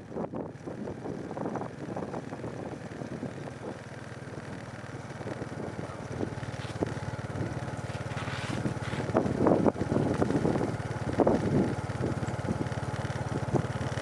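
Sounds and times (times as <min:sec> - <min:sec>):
small engine droning: 0:00.0 - 0:14.0
loud irregular noises: 0:08.0 - 0:09.2.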